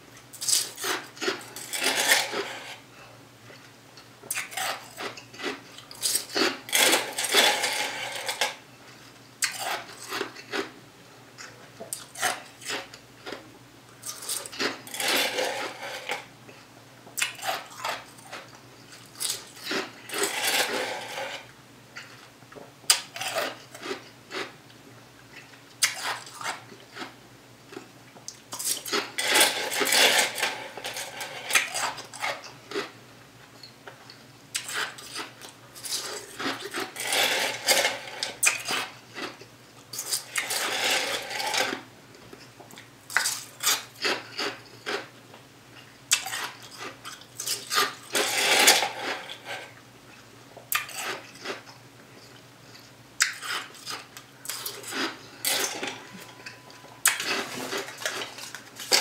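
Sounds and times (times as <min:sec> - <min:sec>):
ice being chewed: 0:00.2 - 0:02.8, 0:03.5 - 0:10.8, 0:11.4 - 0:13.4, 0:14.0 - 0:16.3, 0:17.2 - 0:24.5, 0:25.2 - 0:32.9, 0:33.6 - 0:45.1, 0:45.8 - 0:59.0
plastic spoon scraping cup: 0:01.6 - 0:02.8, 0:14.9 - 0:16.3, 0:19.7 - 0:21.5, 0:40.4 - 0:41.8.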